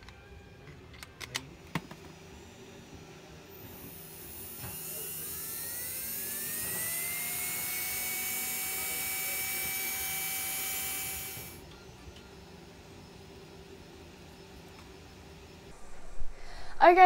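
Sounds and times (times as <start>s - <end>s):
electric motor whine: 1.9s - 12.0s.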